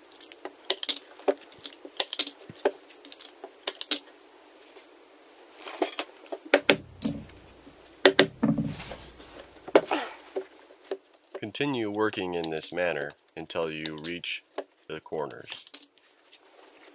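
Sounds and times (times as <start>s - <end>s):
cloth rustling: 6.6s - 9.7s.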